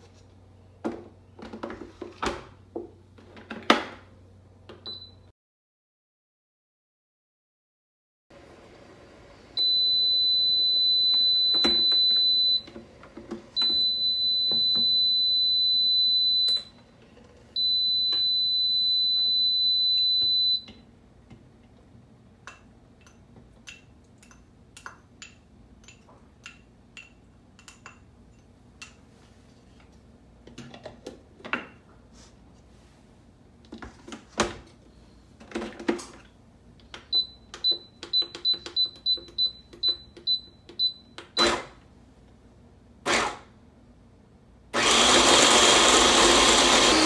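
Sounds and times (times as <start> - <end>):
high beeps of food maker: 9.6 - 12.7, 13.6 - 16.7, 17.6 - 20.7, 44.8 - 47.0.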